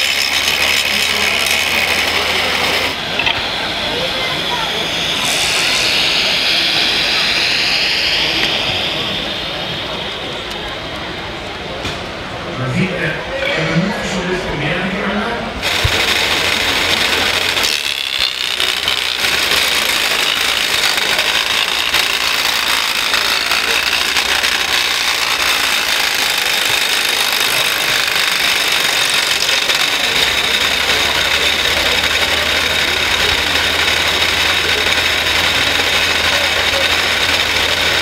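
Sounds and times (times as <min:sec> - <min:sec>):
wood chipper chewing wood: 0:00.0 - 0:03.4, 0:15.6 - 0:38.0
high whine: 0:00.0 - 0:38.0.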